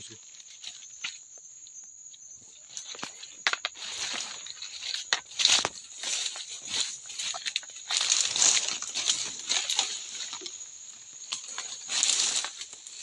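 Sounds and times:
dry grass rustling and crackling: 2.6s - 13.0s.

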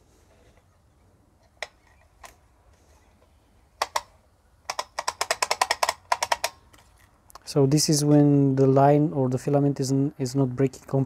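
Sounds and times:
sharp plastic clicks: 1.4s - 2.4s, 3.8s - 7.5s.

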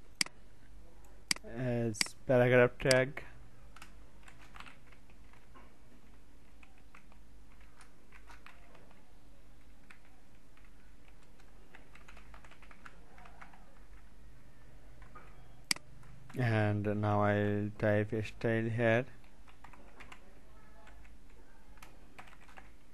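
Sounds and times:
computer keyboard typing: 3.7s - 14.1s, 19.2s - 22.9s.

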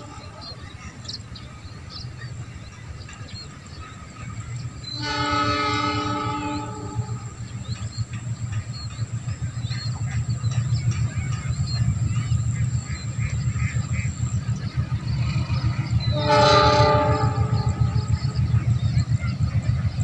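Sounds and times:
train rumble: 0.0s - 20.0s
locomotive horn blast: 4.9s - 7.6s, 15.0s - 18.8s.

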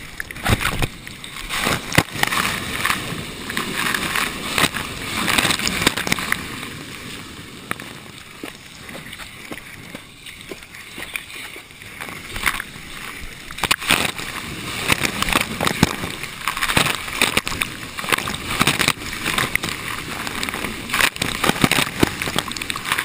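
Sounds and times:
water splashes hitting camera housing: 0.0s - 6.5s, 13.5s - 23.0s
wave water rushing and splashing: 0.0s - 23.0s.

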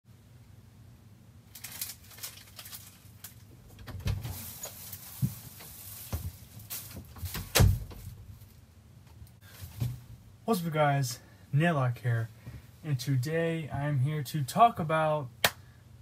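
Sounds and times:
door clicks and rustling: 3.6s - 4.4s
door thumping: 7.0s - 8.1s.

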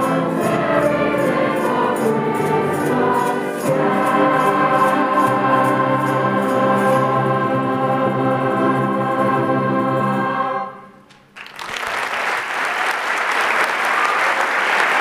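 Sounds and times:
choir singing sustained chord: 0.0s - 11.0s
audience applauding: 11.1s - 15.0s.

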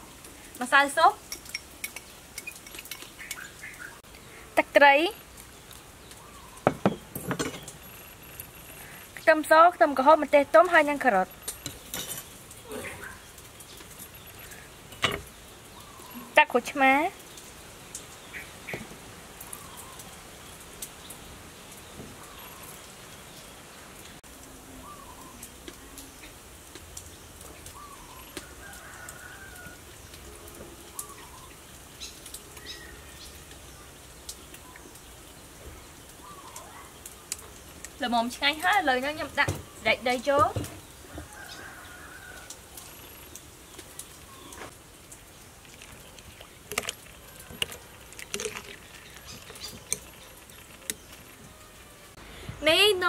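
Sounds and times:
birds calling: 1.5s - 9.3s, 10.2s - 24.2s, 24.8s - 52.5s
metal spoon stirring in ceramic bowl: 45.6s - 51.4s.

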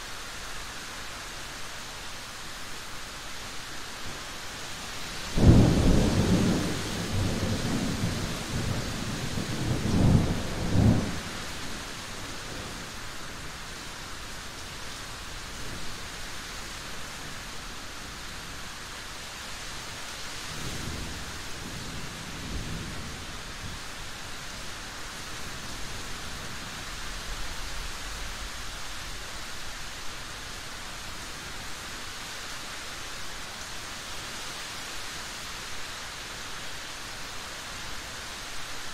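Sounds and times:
steady rain: 0.0s - 38.9s
thunder rumbling: 5.4s - 11.4s.

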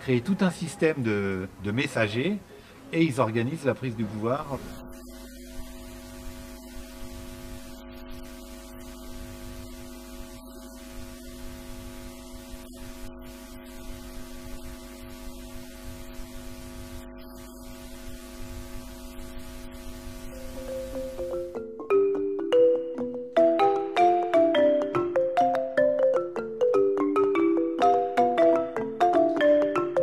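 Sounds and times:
recording hiss: 0.0s - 22.7s
electrical mains hum: 0.0s - 30.0s.

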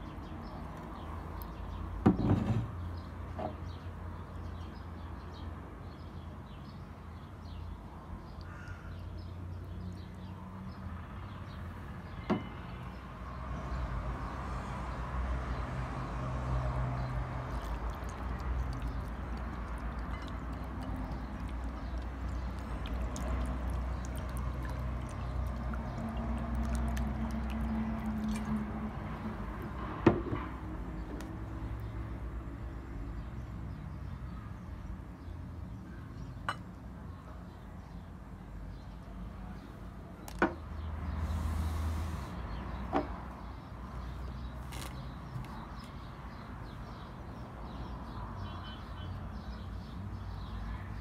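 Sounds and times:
water pouring and sloshing: 17.2s - 31.9s.

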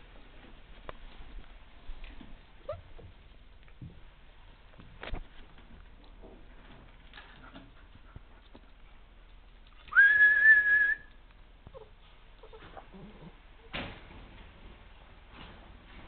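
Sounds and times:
whistled note: 9.9s - 11.1s.

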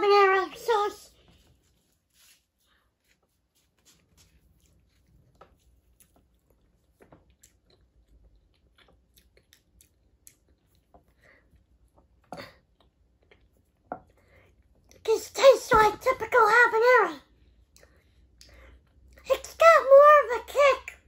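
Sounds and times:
person chewing: 3.0s - 15.0s.

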